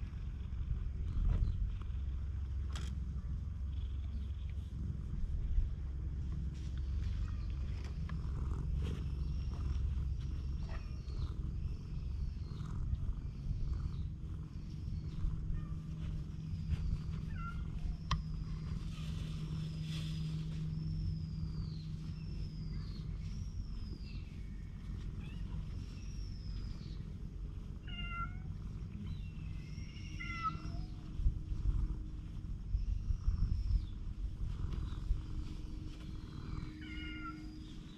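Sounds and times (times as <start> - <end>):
cat purring: 0.0 - 37.9
low rumble: 0.0 - 37.9
cat meowing: 27.8 - 28.5, 29.8 - 31.0, 36.6 - 37.6.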